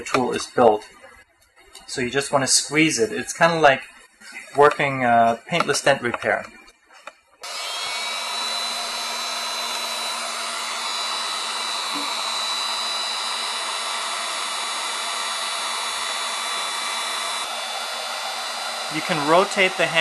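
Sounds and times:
heat gun blowing: 7.4 - 20.0.

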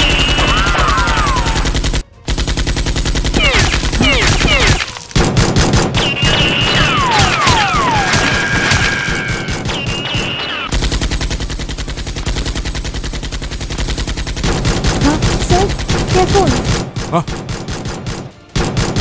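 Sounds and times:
machine-gun gunfire: 0.0 - 19.0
falling whistles: 6.0 - 10.7.

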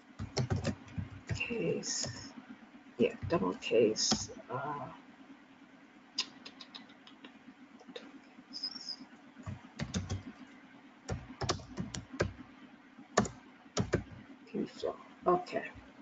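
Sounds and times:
typing on computer keyboard: 0.1 - 2.2, 9.4 - 10.3, 11.1 - 12.4, 13.2 - 14.2.

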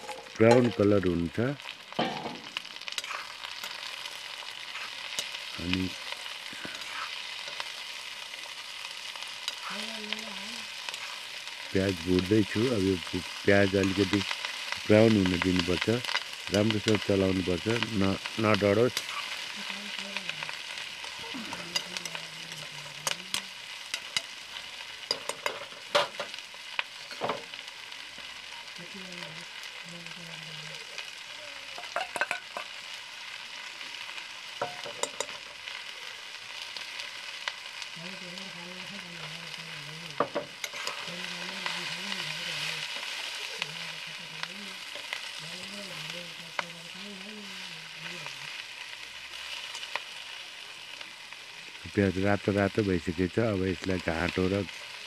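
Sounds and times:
metal ladle scraping pan: 0.0 - 0.7, 40.2 - 41.5
food sizzling in a wok: 0.0 - 55.0.

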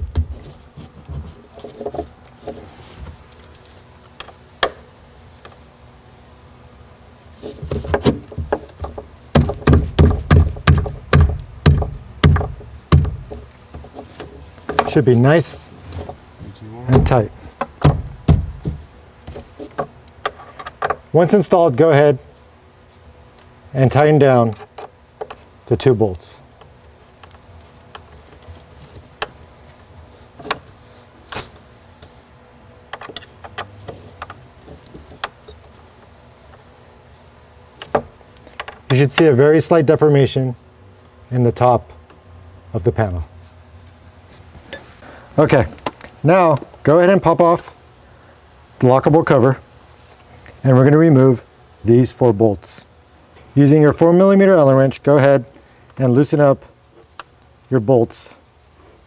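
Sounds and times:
hands thumping plastic cover panel: 7.7 - 13.5, 16.9 - 19.9.

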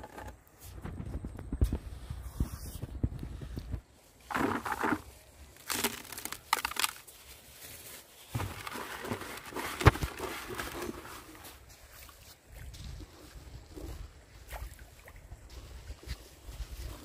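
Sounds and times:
hand scraping rice in basin: 4.2 - 5.2, 8.4 - 11.4.

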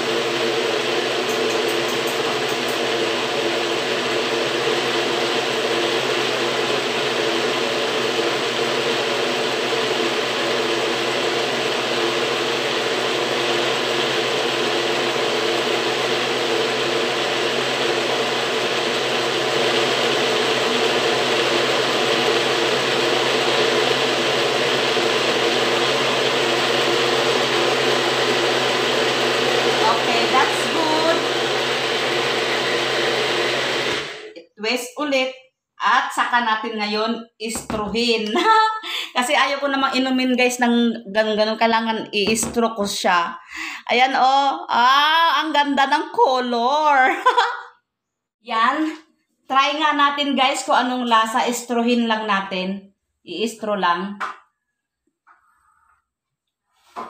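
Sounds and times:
blender running: 0.0 - 34.5.

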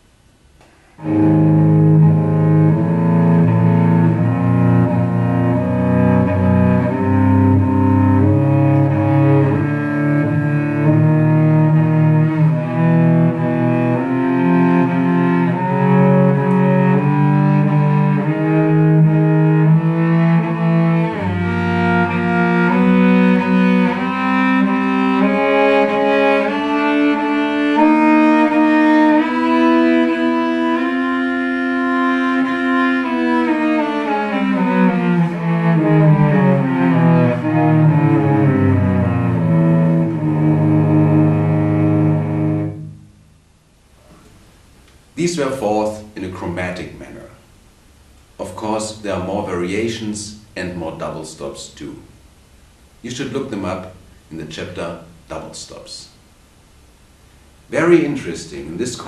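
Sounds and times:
cello bowing double stops: 0.6 - 45.8.

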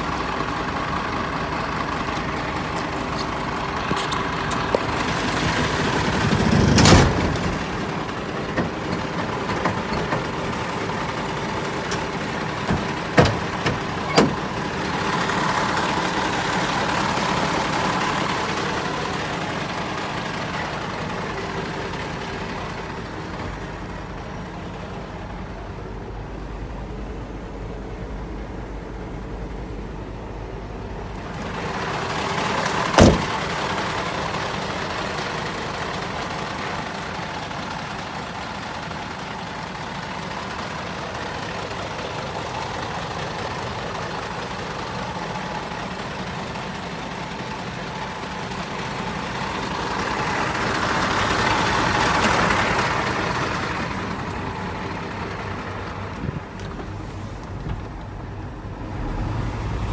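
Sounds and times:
diesel truck engine idling: 0.0 - 59.9
sharp bang: 33.0 - 33.4.

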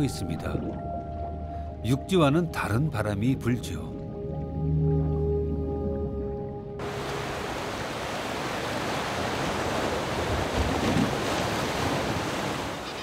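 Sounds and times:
sea waves washing: 6.8 - 13.0.

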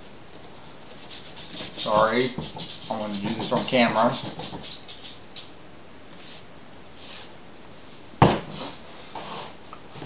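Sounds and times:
soft rustling: 0.3 - 5.5.

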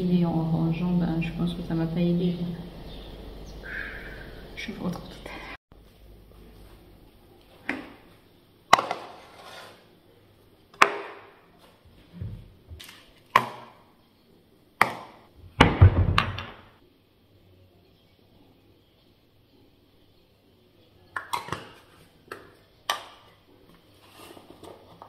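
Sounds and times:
kitchenware clattering on a counter: 21.2 - 21.9.

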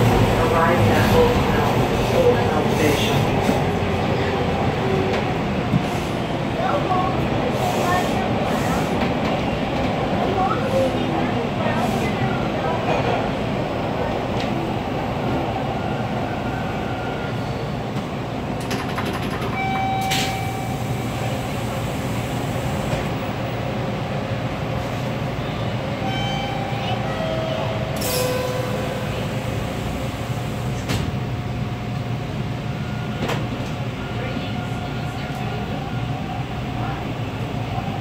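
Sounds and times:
train wheels rumbling on rail: 0.0 - 38.0.

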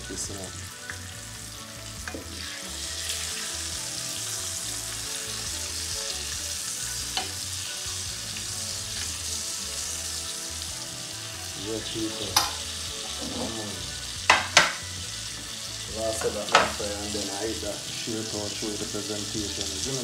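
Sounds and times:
fish sizzling in hot oil: 0.0 - 20.0
metal fork tapping and scraping pan: 14.3 - 14.8.

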